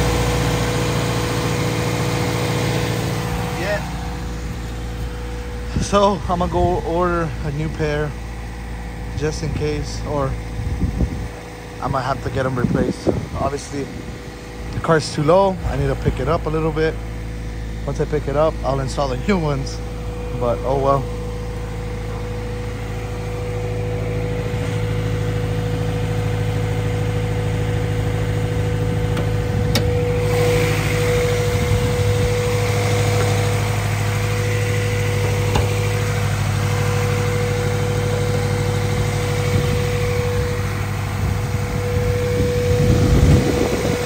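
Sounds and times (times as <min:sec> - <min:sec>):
car engine idling: 0:00.0 - 0:44.0.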